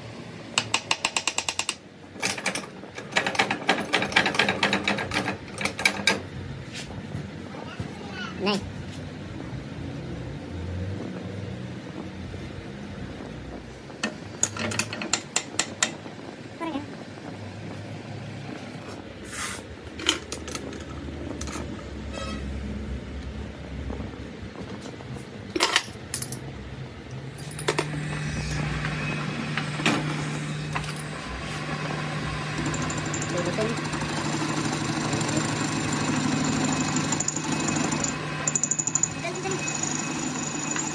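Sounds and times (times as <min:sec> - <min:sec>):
motor hum with wavering pitch: 0:27.4 - 0:40.9.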